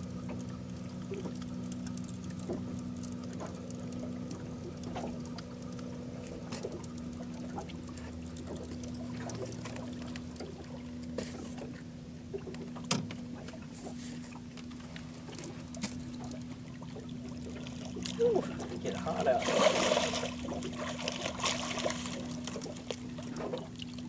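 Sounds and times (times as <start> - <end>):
low hum: 0.0 - 24.0
water patter: 14.6 - 24.0.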